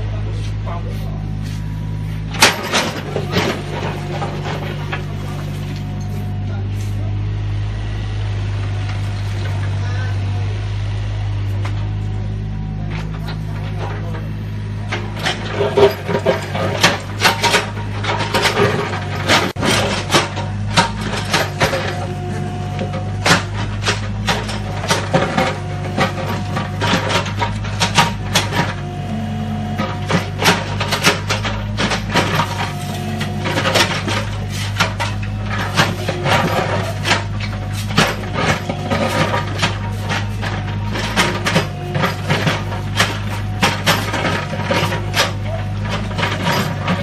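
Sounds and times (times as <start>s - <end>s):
excavator diesel engine running: 0.0s - 47.0s
bricks knocking and clattering: 15.0s - 29.0s, 29.7s - 47.0s.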